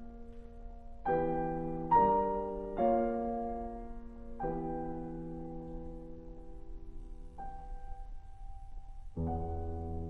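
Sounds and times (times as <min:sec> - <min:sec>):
slow solo piano chords: 0:00.0 - 0:10.0.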